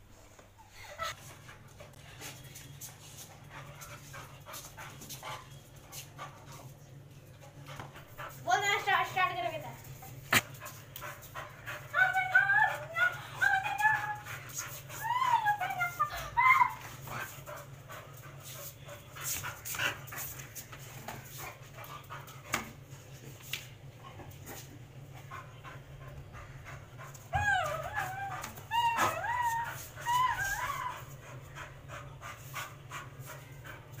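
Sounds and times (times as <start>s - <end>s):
dog whining and yipping: 27.3s - 31.2s.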